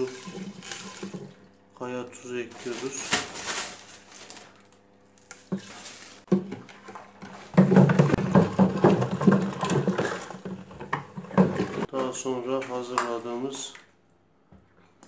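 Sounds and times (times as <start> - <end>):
brine sloshing and rattling in jar: 0.0 - 4.6, 5.3 - 11.9.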